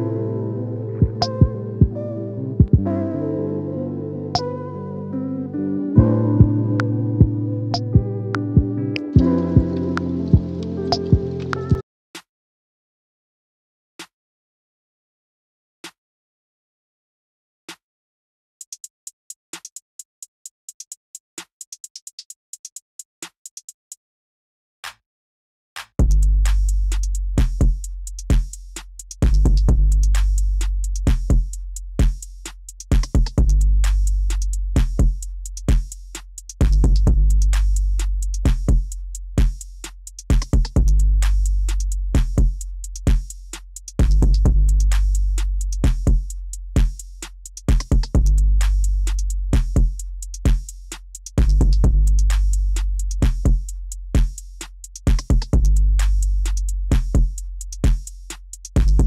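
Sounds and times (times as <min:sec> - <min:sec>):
drum machine beat: 0:01.0 - 0:02.0, 0:02.6 - 0:03.0, 0:06.0 - 0:11.8, 0:18.6 - 0:23.8, 0:26.0 - 0:59.0
deep bass note: 0:04.2 - 0:11.8, 0:29.2 - 0:31.4, 0:36.6 - 0:38.8, 0:44.0 - 0:46.3, 0:48.2 - 0:49.9, 0:51.4 - 0:53.4.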